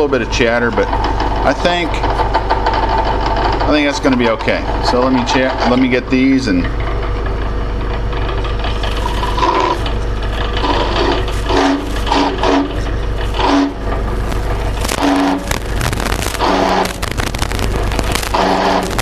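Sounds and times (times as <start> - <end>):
drill press motor running: 0.4 - 19.0
drill bit chattering in sheet steel: 0.8 - 6.1, 14.8 - 19.0.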